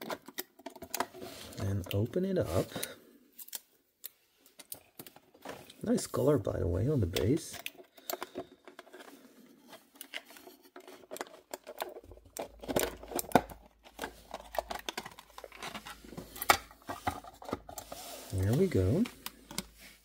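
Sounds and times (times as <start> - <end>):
plastic case crackling and clicking: 7.1 - 9.1, 9.9 - 17.8, 18.4 - 19.7.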